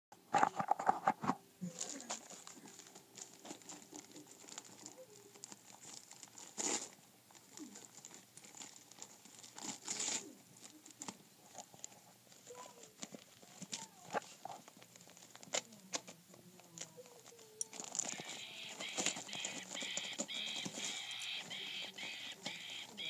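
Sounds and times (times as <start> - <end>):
wrapping paper crinkling: 0.4 - 15.8, 16.6 - 23.0.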